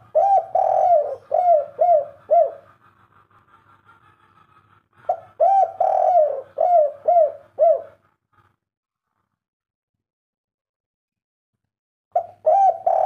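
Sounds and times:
dove cooing: 0.0s - 3.7s, 5.0s - 8.1s, 12.2s - 13.0s.

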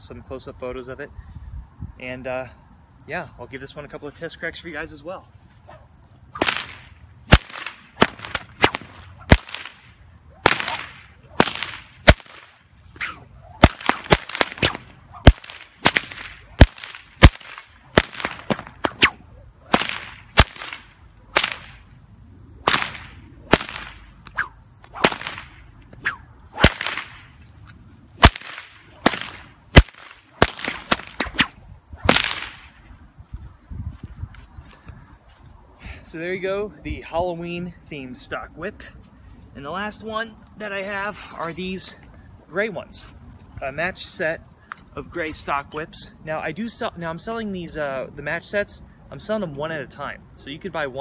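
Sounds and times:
swish of swinging cord: 5.4s - 21.8s, 22.7s - 34.5s
whip cracking: 5.7s - 21.9s, 22.6s - 32.8s.

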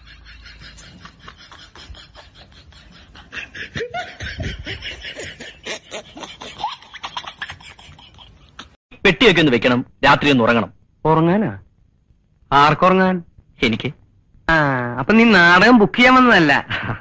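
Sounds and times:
laughter in chopped pulses: 0.0s - 8.8s.

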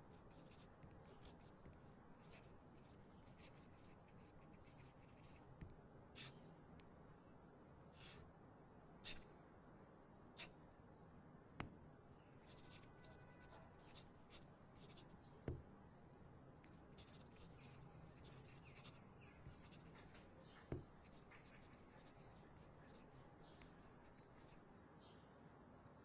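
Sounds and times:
pen scratching on paper: 0.0s - 5.4s, 8.0s - 8.2s, 9.0s - 9.2s, 12.4s - 15.1s, 16.7s - 20.3s, 21.0s - 24.6s.

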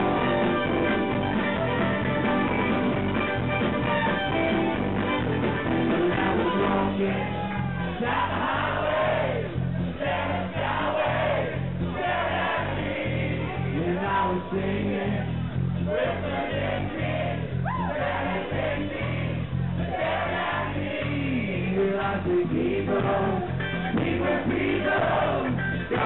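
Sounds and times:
live band playing guitars: 0.0s - 26.0s
man singing: 6.0s - 8.3s, 13.4s - 15.4s, 21.0s - 26.0s.

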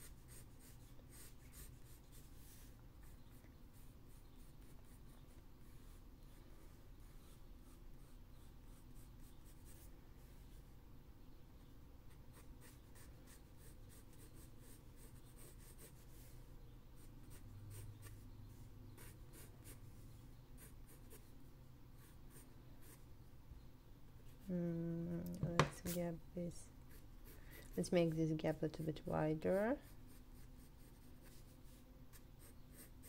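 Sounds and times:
pencil scratching on paper: 0.0s - 9.9s, 12.1s - 16.3s, 17.0s - 18.2s, 18.9s - 19.8s, 29.4s - 33.0s.

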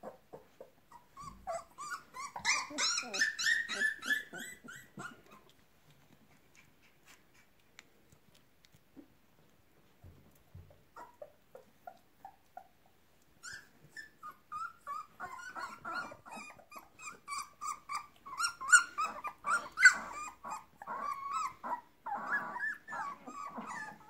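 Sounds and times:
puppies yipping and growling: 0.0s - 5.6s, 10.5s - 24.0s.

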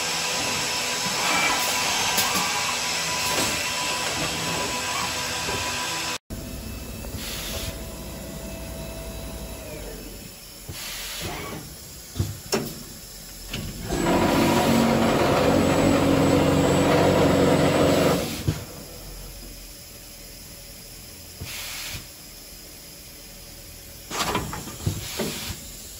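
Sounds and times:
drilling machine humming: 0.0s - 12.1s, 13.0s - 18.9s
pneumatic air hisses: 7.1s - 7.8s, 9.8s - 13.9s, 21.3s - 22.5s, 24.1s - 25.9s.

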